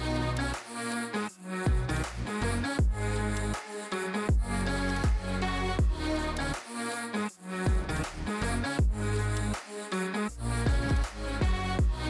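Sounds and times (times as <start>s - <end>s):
deep kick drum: 1.7s - 2.0s, 2.8s - 3.0s, 4.3s - 6.0s, 7.7s - 8.0s, 8.8s - 9.0s, 10.6s - 12.0s.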